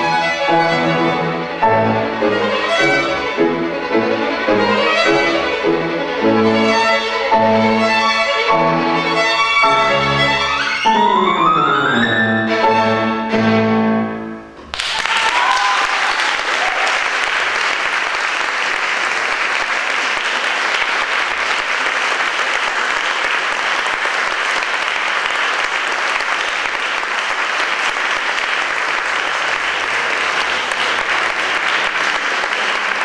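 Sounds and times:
audience applauding: 0:14.6 - 0:33.0.

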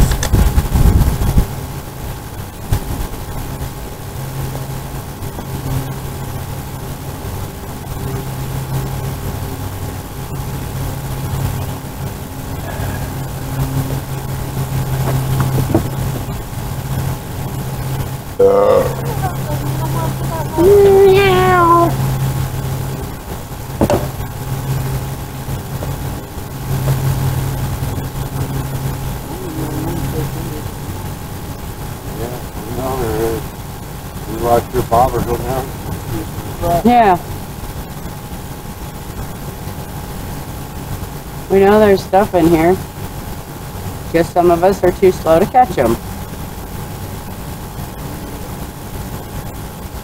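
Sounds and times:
engine humming: 0:00.0 - 0:50.0
faint noisy hiss: 0:00.0 - 0:50.0
man burping: 0:12.6 - 0:13.2, 0:18.4 - 0:19.4
sharp knock: 0:23.8 - 0:24.2.

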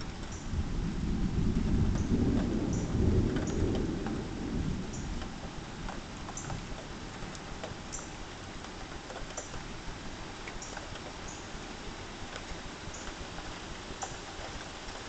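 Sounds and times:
thunder rumbling: 0:00.0 - 0:07.9
steady rain with drips: 0:00.0 - 0:15.0.

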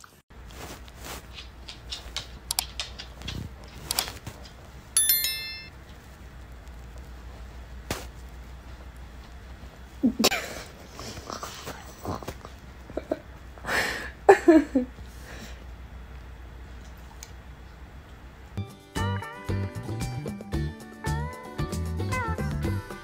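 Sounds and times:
sharp mouse clicks: 0:01.7 - 0:04.1
notification bell chime: 0:05.0 - 0:05.7.

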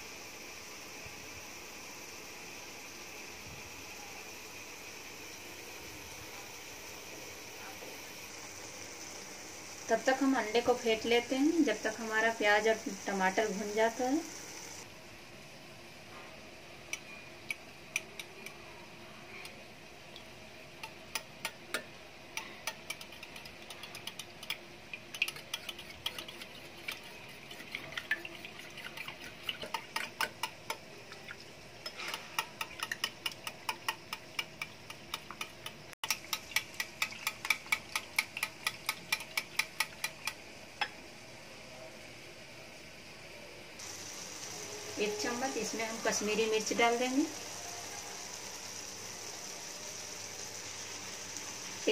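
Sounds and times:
whisk clicking against glass bowl: 0:20.8 - 0:30.9, 0:31.8 - 0:40.9.

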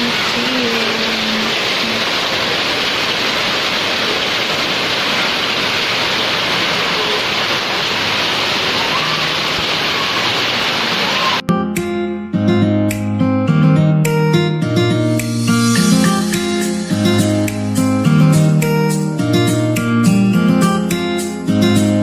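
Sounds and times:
heavy rain pouring: 0:00.0 - 0:11.4
water running off roofs: 0:00.0 - 0:11.4.

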